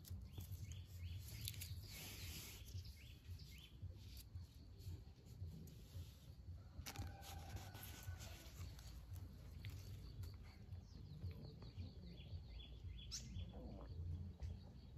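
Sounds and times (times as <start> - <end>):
faint birds chirping: 0.0 - 14.9.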